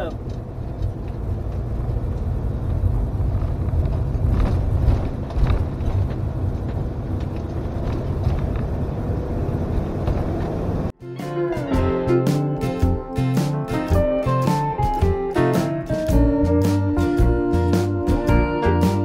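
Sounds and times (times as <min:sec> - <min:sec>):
engine and road rumble: 0:00.0 - 0:19.0.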